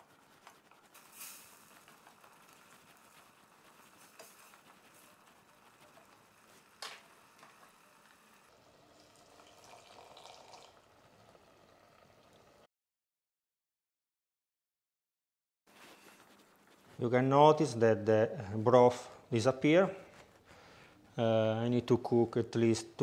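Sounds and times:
chopsticks stirring: 0.0s - 8.0s
food simmering and bubbling in pot: 0.0s - 12.7s.

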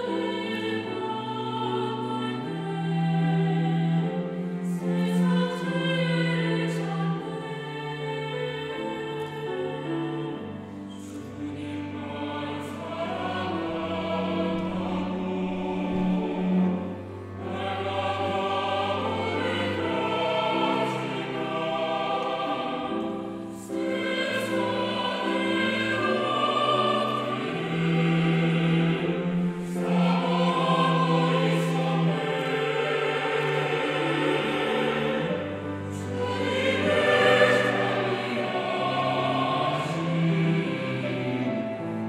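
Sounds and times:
mixed choir singing: 0.0s - 42.0s.

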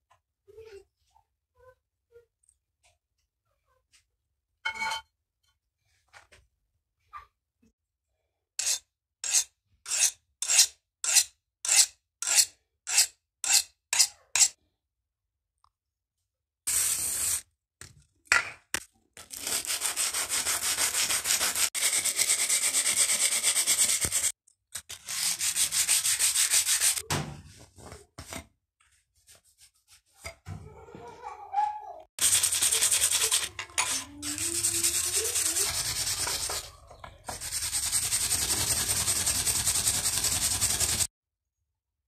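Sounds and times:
sanding on sandpaper: 16.7s - 17.4s, 19.3s - 27.0s, 32.2s - 36.7s, 37.3s - 41.1s.

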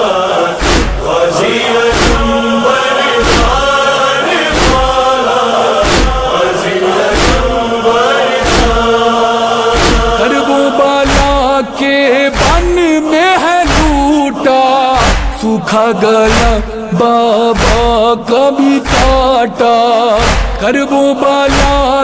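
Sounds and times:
men chanting a lament: 0.0s - 22.0s
large drum booming: 1.9s - 2.3s, 7.1s - 7.6s, 8.4s - 8.9s, 9.8s - 10.2s.

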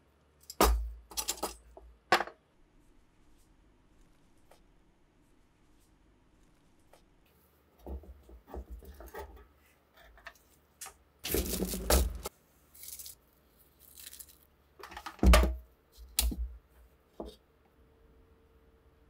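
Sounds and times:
aluminium foil tearing and crinkling: 11.2s - 14.5s.

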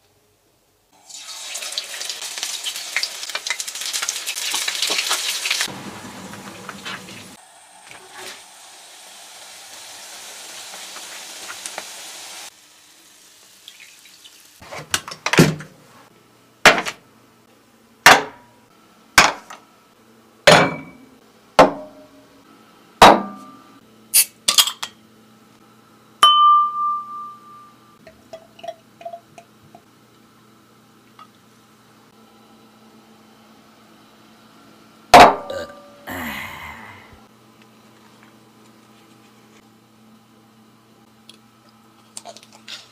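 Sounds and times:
food sizzling in hot oil: 1.0s - 14.6s
dishes clinking on a table: 20.5s - 21.0s, 24.2s - 25.0s
ringing clink: 26.2s - 28.0s.

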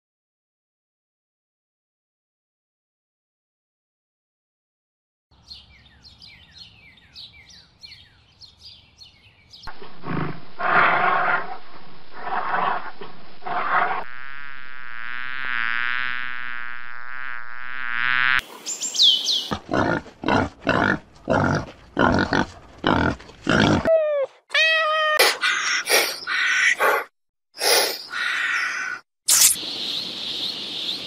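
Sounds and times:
wild boar grunting: 9.7s - 11.6s, 19.5s - 23.9s
wavering buzzing drone: 9.7s - 18.4s
short falling chirps and calls: 29.3s - 29.6s.

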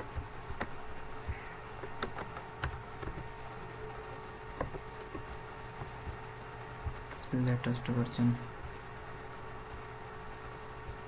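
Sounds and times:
keyboard and mouse clicks: 0.0s - 3.3s, 4.5s - 6.2s, 6.8s - 7.4s
steady low hum: 0.0s - 11.0s.

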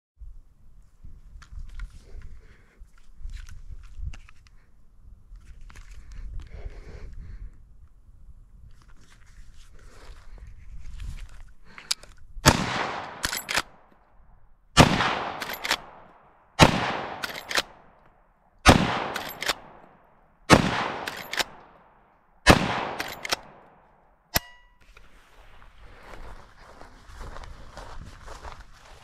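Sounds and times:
rifle shots echoing: 12.4s - 13.8s, 14.8s - 17.9s, 18.6s - 19.9s, 20.5s - 23.8s
rifle lever metallic clacks: 13.0s - 13.8s, 15.4s - 16.0s, 17.0s - 17.8s, 19.0s - 19.9s, 20.9s - 21.7s, 22.8s - 23.7s, 24.3s - 24.8s
metallic click with ring: 24.3s - 24.8s.

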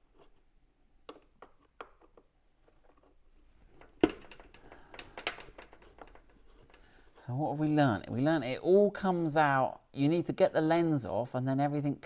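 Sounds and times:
plastic clicks and rattles: 1.0s - 7.0s.

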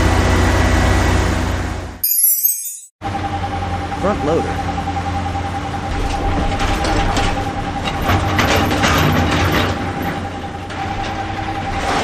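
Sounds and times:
wheel loader diesel engine: 0.0s - 2.0s, 3.0s - 12.0s.

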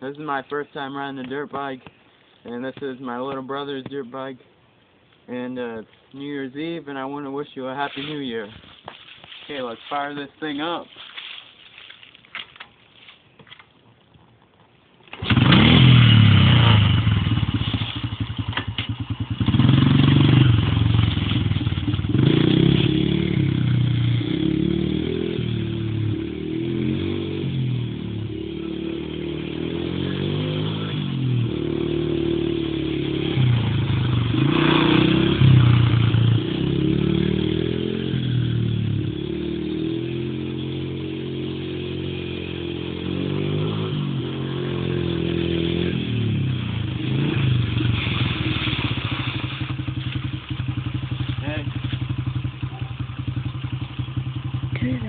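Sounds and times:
dirt bike engine revving: 15.1s - 55.0s.

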